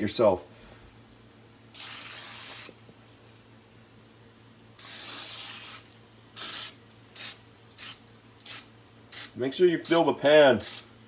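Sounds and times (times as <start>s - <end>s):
aerosol spray hissing: 1.8s - 2.8s, 4.8s - 10.0s, 10.6s - 10.9s.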